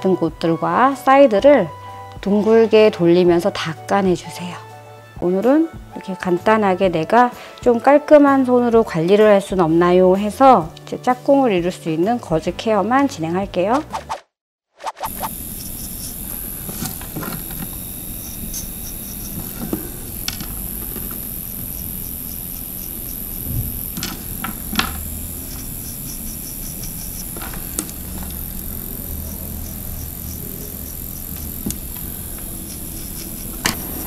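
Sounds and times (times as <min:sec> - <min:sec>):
electric nail drill whining: 0:15.0 - 0:34.0.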